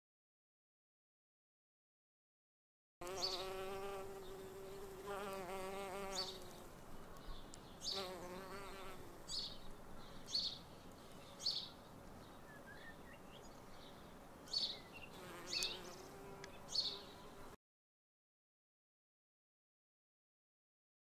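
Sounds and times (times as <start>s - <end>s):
bee buzzing in flight: 3.0s - 6.7s, 7.9s - 9.3s, 15.2s - 17.6s
bird chirping: 3.0s - 17.5s.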